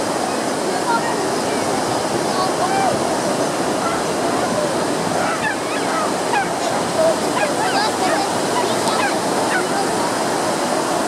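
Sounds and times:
ocean surf breaking: 0.0 - 11.0.

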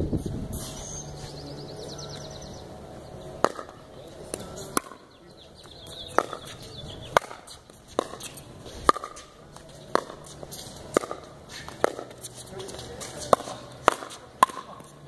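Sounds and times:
paddles striking pickleball: 3.4 - 15.0.

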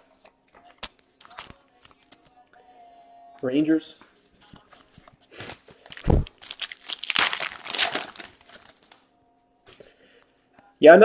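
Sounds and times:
foil wrapper tearing and crinkling: 5.4 - 9.0.

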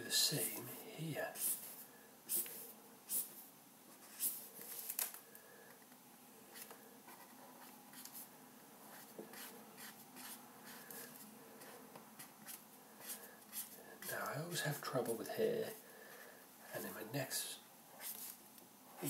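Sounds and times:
marker strokes on paper: 1.3 - 4.9, 6.5 - 8.3, 8.9 - 14.3, 18.0 - 18.4.

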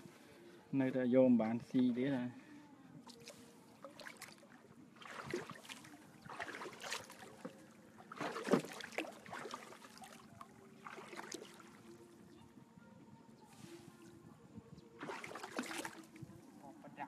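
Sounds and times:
water splashing against boat hull: 3.1 - 12.0, 15.0 - 16.4.

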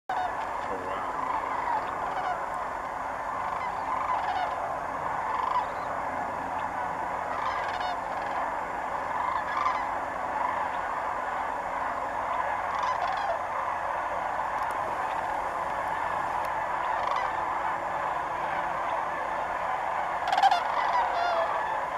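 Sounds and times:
cranes calling: 0.1 - 21.9.

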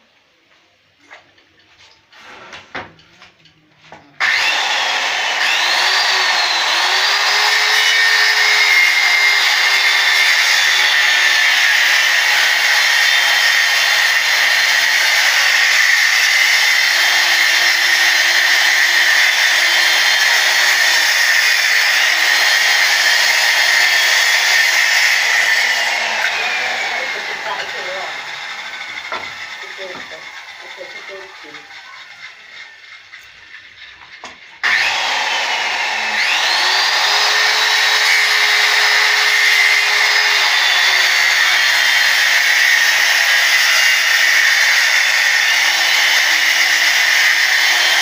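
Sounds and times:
circular saw cutting wood: 4.2 - 48.0.

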